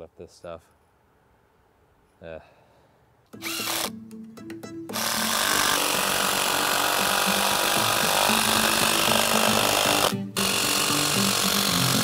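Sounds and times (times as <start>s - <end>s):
impact driver driving screws: 3.4s - 3.9s, 4.9s - 12.0s.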